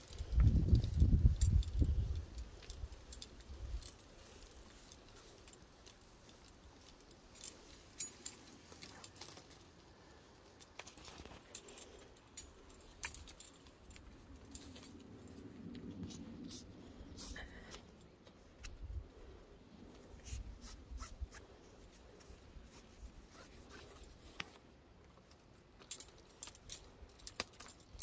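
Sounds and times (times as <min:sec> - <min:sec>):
metal climbing hardware clinking: 0:00.0 - 0:16.3, 0:23.4 - 0:28.0.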